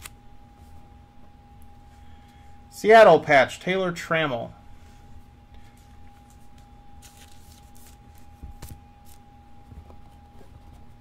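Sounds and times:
faint steady hum: 0.0s - 11.0s
trading cards rustling and clicking: 5.6s - 9.2s.

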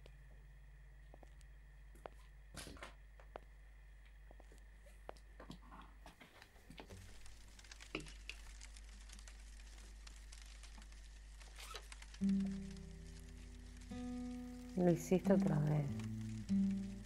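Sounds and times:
paper rustling: 6.2s - 17.0s.

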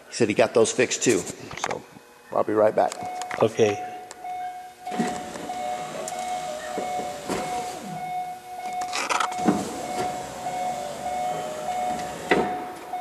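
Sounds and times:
electric power window motor: 4.4s - 13.0s.

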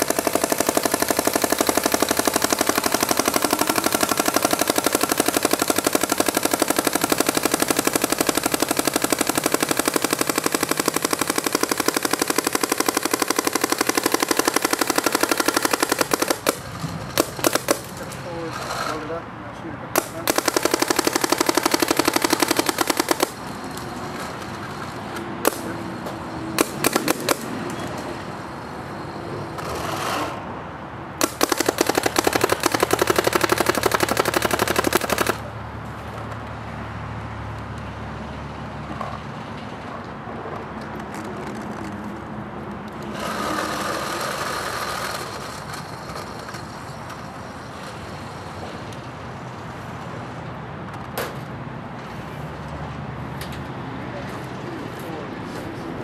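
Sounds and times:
paintball marker shots: 0.0s - 16.6s, 20.0s - 23.4s, 26.6s - 27.5s, 31.2s - 35.5s.

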